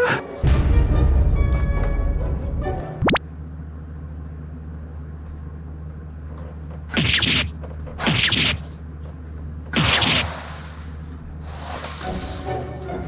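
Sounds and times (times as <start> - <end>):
background music: 0.0 - 3.2, 12.0 - 13.0
low steady hum: 0.4 - 13.0.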